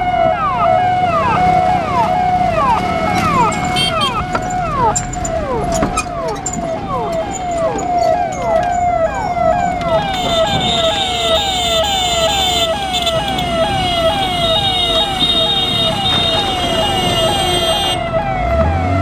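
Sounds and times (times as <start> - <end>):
ambulance siren wailing: 0.0 - 19.0.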